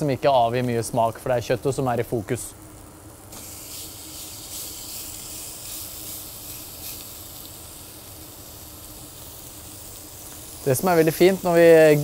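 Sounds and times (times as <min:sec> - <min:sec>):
steak sizzling on grill pan: 0:02.6 - 0:12.0.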